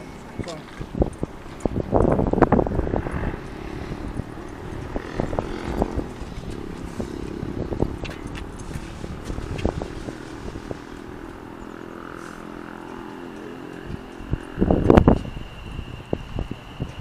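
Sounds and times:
electric train traction hum: 0.0s - 17.0s
thin high whine: 0.0s - 17.0s.

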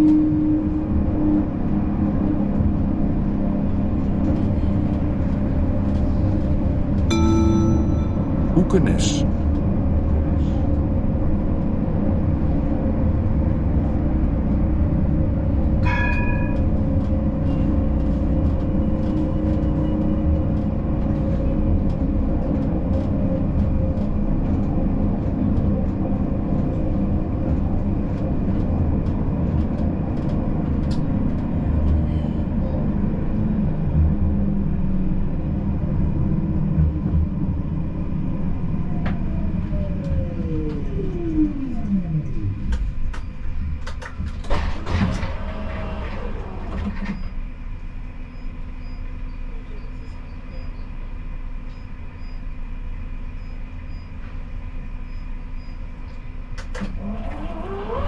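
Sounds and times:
tram wheels rumbling on rail: 0.0s - 58.0s
ringing tone: 7.1s - 8.6s
falling whine of traction motors: 38.1s - 43.1s, 44.4s - 48.4s.

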